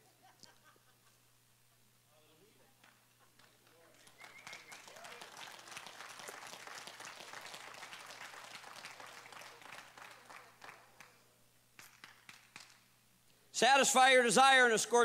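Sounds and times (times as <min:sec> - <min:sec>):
congregation applauding softly: 0:02.9 - 0:11.2.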